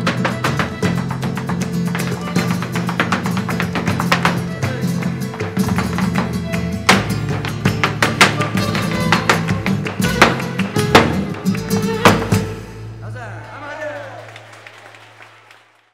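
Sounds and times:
hand clapping: 0.0 - 12.6
dance footwork strikes: 0.0 - 12.8
bowed strings: 0.0 - 13.1
flamenco guitar: 0.0 - 13.1.

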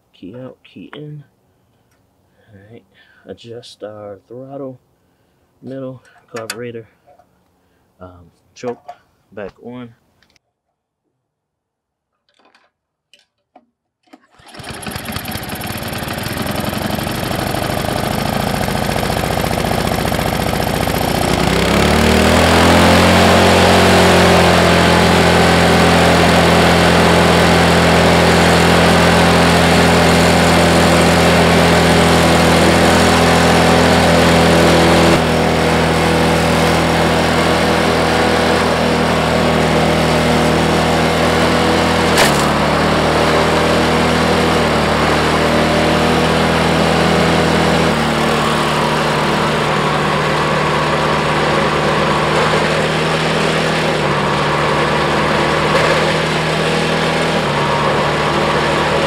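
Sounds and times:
snowblower engine fast idle: 14.3 - 59.0.

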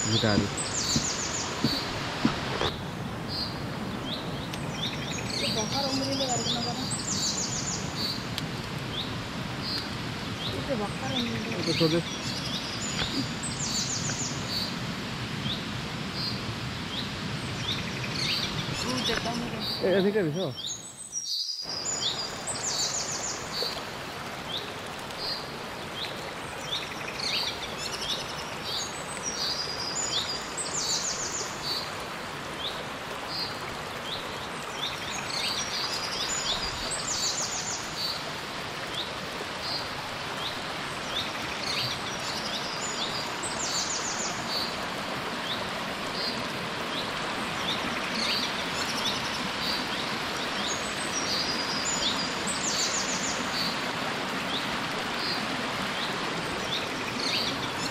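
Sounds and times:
birds chirping and trilling: 0.0 - 8.3, 8.9 - 14.8, 15.4 - 32.0, 45.4 - 53.8, 54.4 - 57.9
stream water rushing: 0.0 - 57.9.

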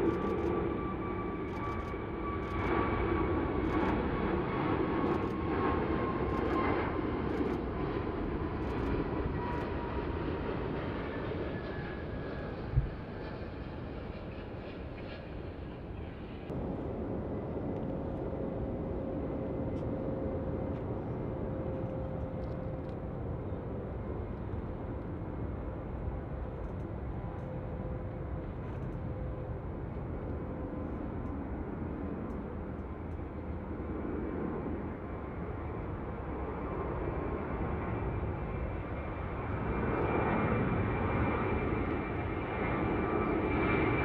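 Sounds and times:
jet engine whine: 0.0 - 44.0
jet engines drone: 0.0 - 44.0.

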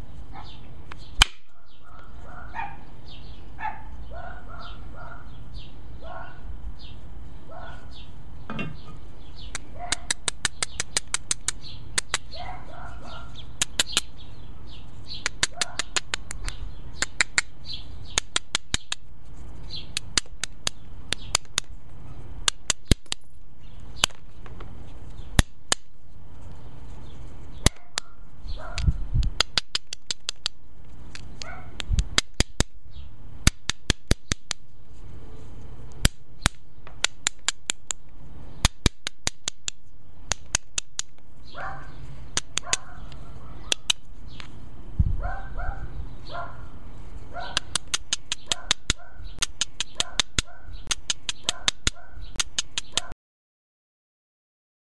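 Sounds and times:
stone tapping and scraping flint: 9.4 - 12.4, 13.4 - 14.2, 15.1 - 28.1, 28.8 - 32.8, 33.4 - 34.7, 35.9 - 41.3, 42.2 - 44.6, 47.5 - 53.1.

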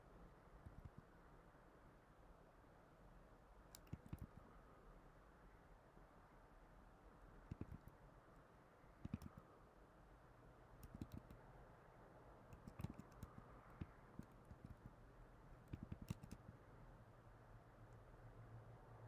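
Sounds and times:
faint low hum: 0.0 - 19.0
keyboard keys tapping: 3.8 - 4.4, 7.5 - 7.9, 9.0 - 9.4, 10.8 - 11.4, 12.5 - 15.0, 15.7 - 16.6.

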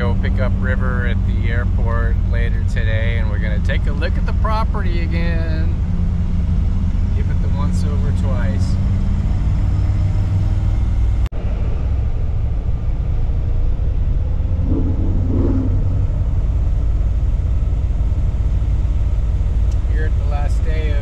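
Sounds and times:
car engine rumbling: 0.0 - 21.0.

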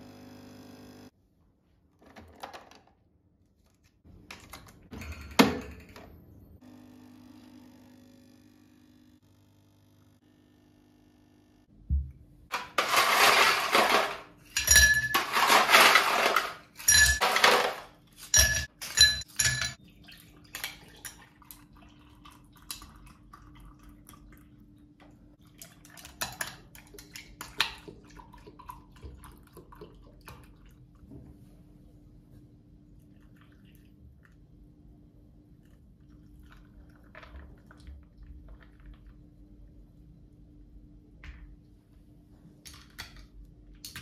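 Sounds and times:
ice cubes clinking in glasses: 12.5 - 19.8
milk pouring: 20.3 - 24.6, 26.9 - 30.9, 35.6 - 39.3.

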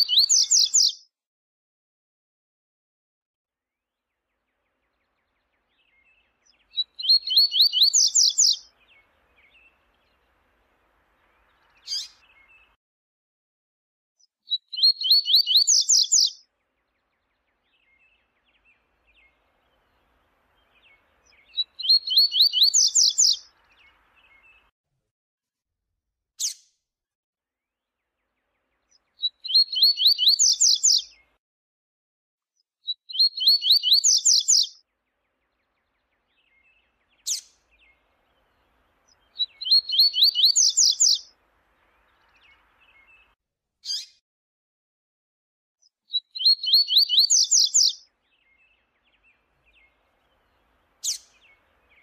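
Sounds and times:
soft bird calls: 0.0 - 1.0, 4.7 - 12.8, 14.5 - 16.4, 17.0 - 24.7, 28.9 - 31.4, 33.1 - 34.8, 35.4 - 44.2, 46.1 - 52.0.

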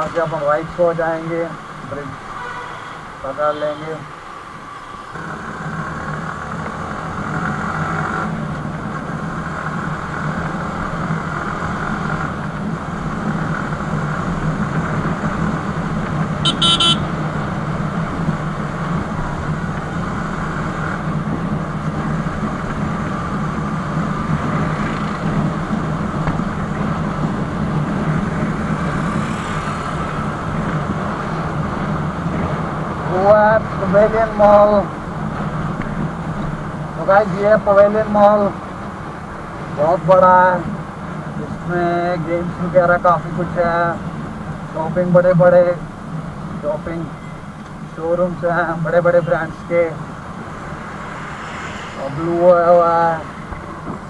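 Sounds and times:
motorcycle engine and road noise: 0.0 - 54.0
short horn beep: 16.4 - 17.1.

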